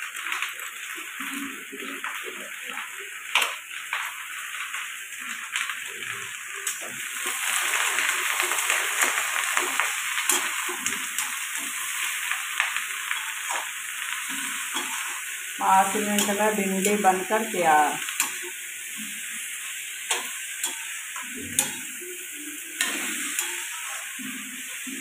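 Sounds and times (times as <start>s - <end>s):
vegetables sizzling in a pan: 0.0s - 25.0s
spatula scraping a pan: 22.7s - 25.0s.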